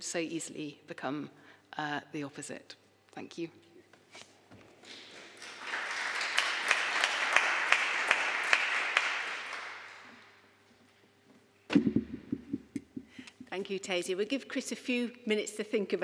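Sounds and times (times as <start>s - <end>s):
audience applauding: 4.8s - 10.4s
sudden thump: 11.7s - 13.1s.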